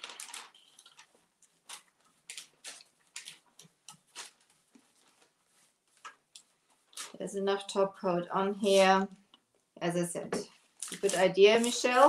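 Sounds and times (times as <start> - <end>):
paper rustling: 0.0 - 7.2, 10.5 - 12.0
paintbrush strokes on paper: 4.1 - 6.1, 8.5 - 9.1.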